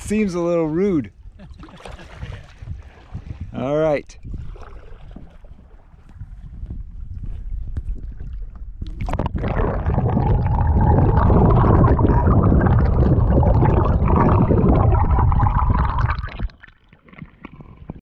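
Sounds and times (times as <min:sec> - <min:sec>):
underwater water rushing and gurgling: 0:08.0 - 0:18.0.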